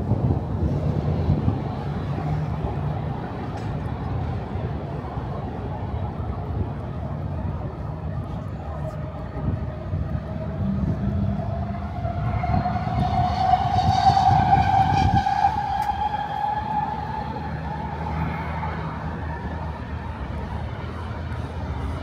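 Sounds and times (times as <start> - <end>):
low rumble: 5.9 - 22.0
train motor whine: 8.7 - 21.9.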